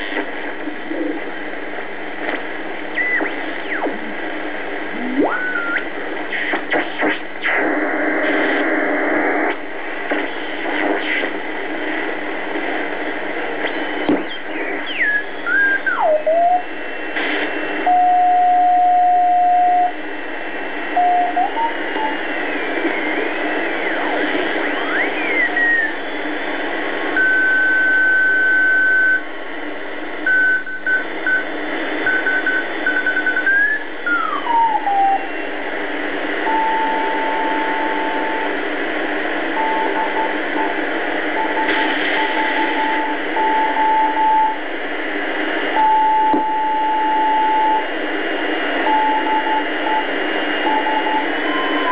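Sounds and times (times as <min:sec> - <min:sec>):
radio band noise and hiss: 0:00.0 - 0:51.9
morse code beeps: 0:27.2 - 0:29.2, 0:30.3 - 0:35.0, 0:41.4 - 0:44.6, 0:45.8 - 0:47.8, 0:48.8 - 0:51.9.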